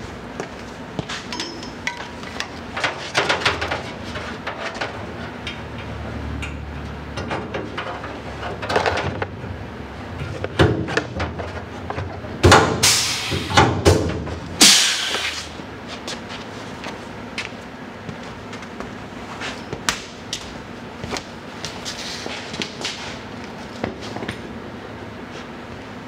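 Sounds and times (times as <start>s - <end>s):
metal parts clanking and clicking: 1.3s - 6.6s
air tool bursts: 12.8s - 13.6s, 14.6s - 15.5s.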